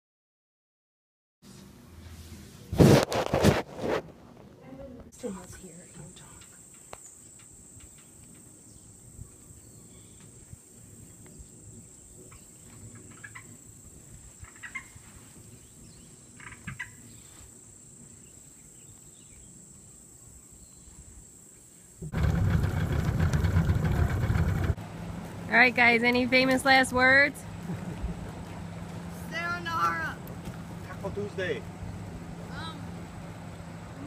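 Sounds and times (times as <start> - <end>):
insect drone: 5.5 - 24.6
boat outboard motor running: 22.0 - 34.0.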